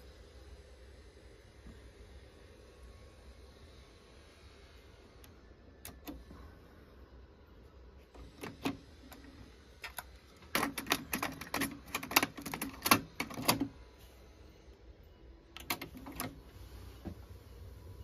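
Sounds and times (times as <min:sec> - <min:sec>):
tape transport engaging clicks: 0:05.2 - 0:06.2, 0:08.2 - 0:13.8, 0:15.6 - 0:16.4.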